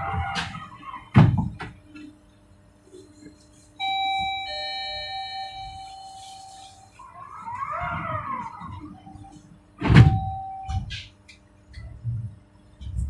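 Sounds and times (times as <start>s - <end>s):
two-note electronic chime: 3.8s - 7.0s.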